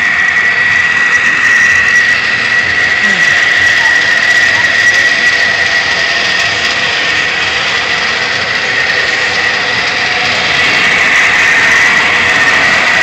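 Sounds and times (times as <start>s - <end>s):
machine whining: 0.0s - 13.0s.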